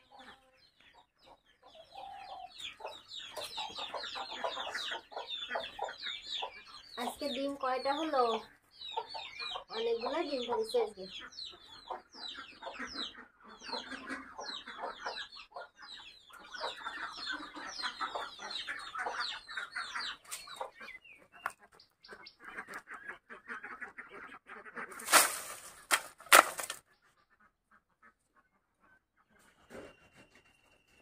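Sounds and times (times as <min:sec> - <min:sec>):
hens clucking: 0:00.0 - 0:29.9
firewood sticks rustling and crackling: 0:24.9 - 0:26.8.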